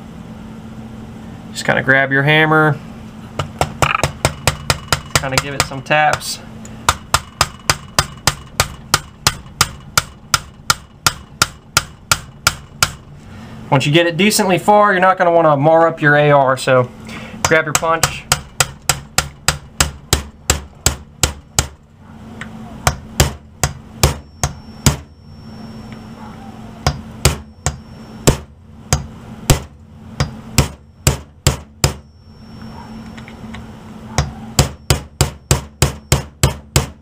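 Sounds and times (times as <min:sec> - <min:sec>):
hammer tapping a punch: 0:03.4 - 0:06.3, 0:06.9 - 0:13.0, 0:17.4 - 0:21.9, 0:22.8 - 0:25.1, 0:26.8 - 0:32.1, 0:34.1 - 0:37.0.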